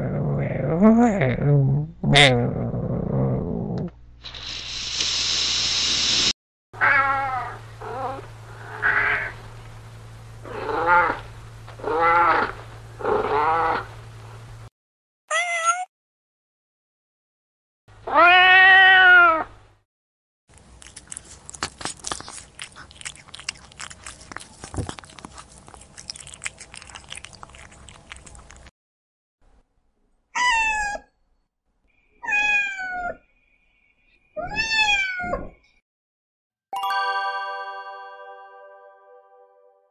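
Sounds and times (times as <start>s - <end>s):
cat meowing: 15.3s - 15.9s, 18.1s - 19.5s, 30.4s - 31.1s, 32.2s - 33.2s, 34.4s - 35.4s
cat chewing food: 20.5s - 28.7s.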